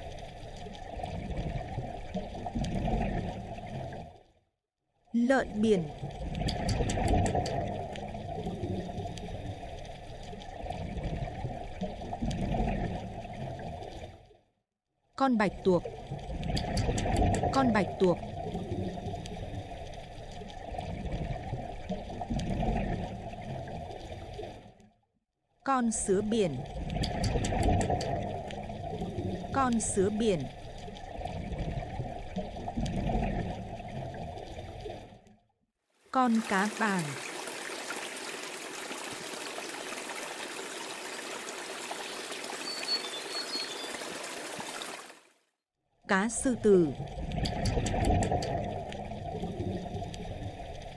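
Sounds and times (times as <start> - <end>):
trickling water: 0.0 - 4.4, 5.0 - 14.5, 15.3 - 25.0, 25.9 - 50.9
low underwater noise: 0.0 - 4.5, 5.4 - 14.6, 15.4 - 25.1, 25.9 - 50.9
faint clicks: 16.5 - 17.5.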